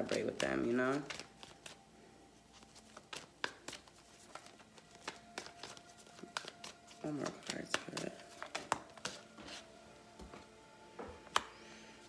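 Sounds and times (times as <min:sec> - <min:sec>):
cards being shuffled: 0:00.0 - 0:01.8, 0:02.4 - 0:09.7.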